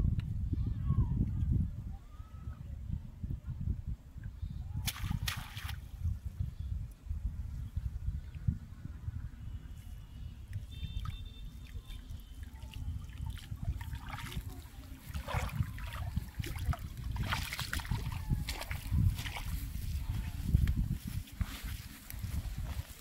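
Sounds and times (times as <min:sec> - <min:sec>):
water splashing and dripping: 0:04.8 - 0:05.9, 0:10.5 - 0:19.7
water sloshing from wading legs: 0:10.7 - 0:20.4.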